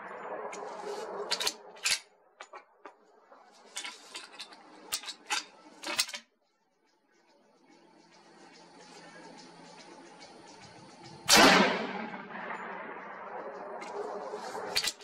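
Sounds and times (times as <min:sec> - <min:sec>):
rifle shot echoing: 0:11.3 - 0:14.8.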